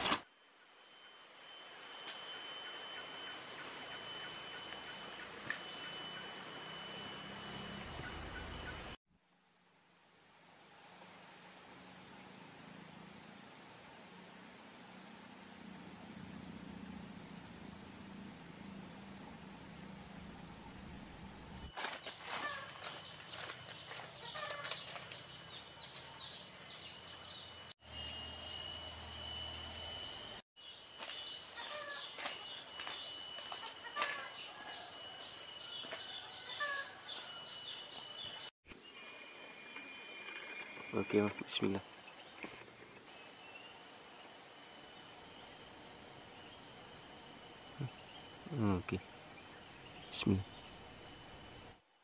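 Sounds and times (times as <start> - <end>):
high insect whine: 0.0 - 52.0
birds calling and chirping: 7.6 - 9.0
low hum: 10.7 - 21.7.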